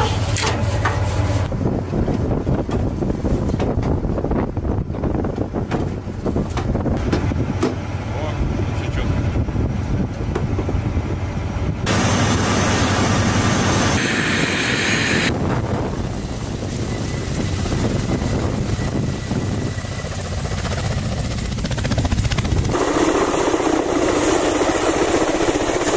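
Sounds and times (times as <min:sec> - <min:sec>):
helicopter rotor rumble: 0:00.0 - 0:25.9
hissing rush: 0:11.9 - 0:20.5.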